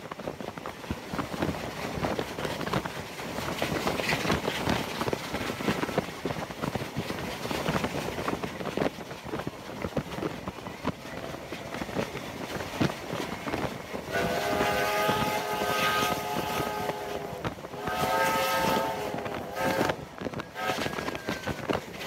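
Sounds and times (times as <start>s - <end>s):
rapid irregular clatter: 0.0s - 14.1s
steam train running: 0.0s - 22.0s
wind buffeting microphone: 0.0s - 22.0s.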